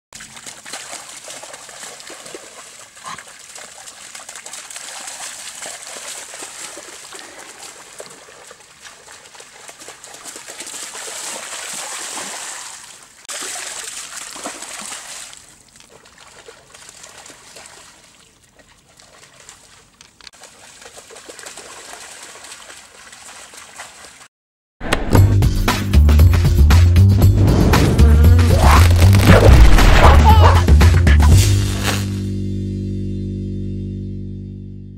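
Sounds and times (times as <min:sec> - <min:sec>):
dogs splashing through water: 0:00.2 - 0:24.3.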